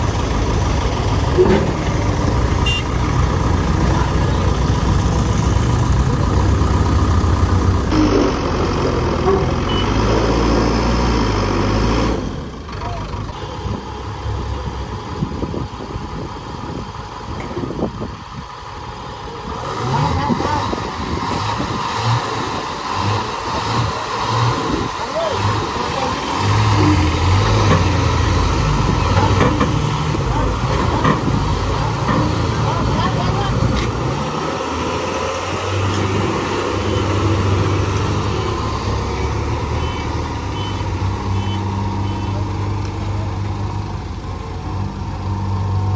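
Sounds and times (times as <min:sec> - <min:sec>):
diesel engines revving: 0:00.0 - 0:45.9
faint short beeps: 0:09.7 - 0:10.0.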